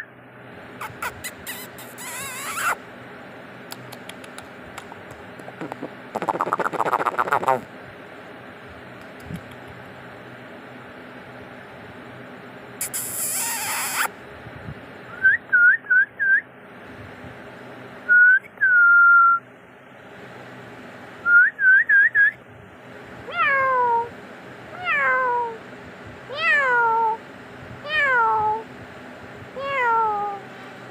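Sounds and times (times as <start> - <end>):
kittens meowing: 0.8 - 2.8, 23.3 - 24.1, 24.8 - 25.6, 26.3 - 27.2
kittens squeaking: 0.8 - 2.8, 5.5 - 7.6, 12.8 - 14.1.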